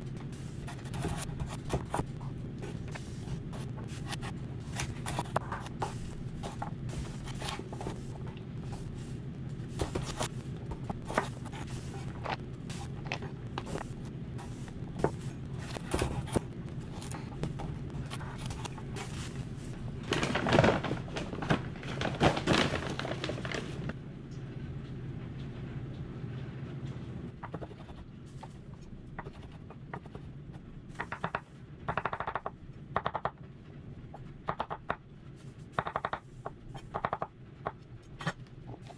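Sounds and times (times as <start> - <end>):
paper bag rustling: 14.4 - 24.0.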